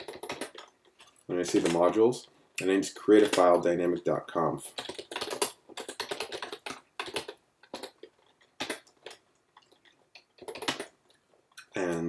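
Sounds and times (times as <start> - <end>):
typing on computer keyboard: 0.0 - 0.7, 3.1 - 3.6, 4.7 - 11.0.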